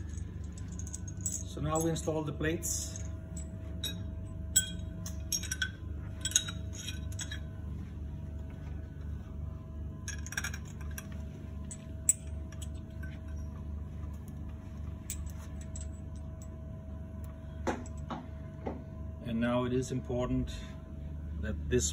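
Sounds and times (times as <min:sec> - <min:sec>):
light metallic clinks: 0:00.0 - 0:07.5
steady low hum: 0:00.0 - 0:21.9.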